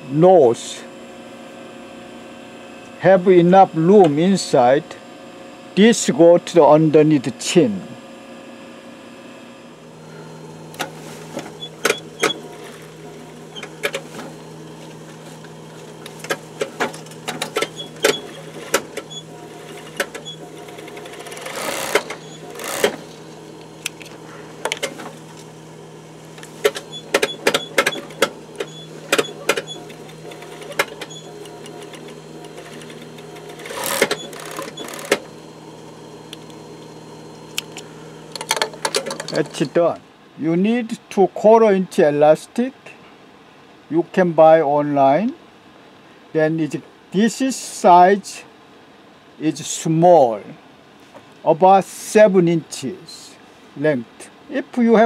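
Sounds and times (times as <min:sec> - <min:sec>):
sewing machine motor humming: 0:09.9 - 0:39.8
machine stitching: 0:10.7 - 0:25.6, 0:26.2 - 0:36.6, 0:38.3 - 0:39.8.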